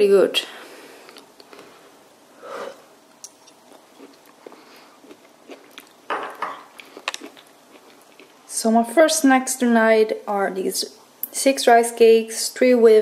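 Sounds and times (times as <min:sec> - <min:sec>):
chewing food: 0:03.2 - 0:08.4.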